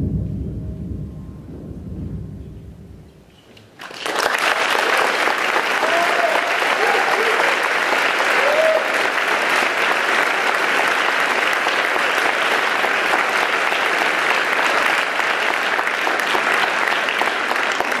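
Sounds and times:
audience applauding: 3.8s - 18.0s.

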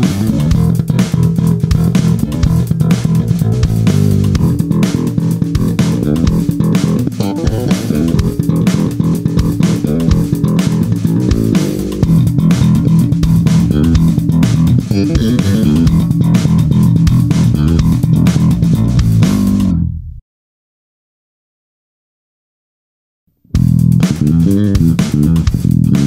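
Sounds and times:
slap bass guitar: 0.0s - 20.2s, 23.5s - 26.0s.

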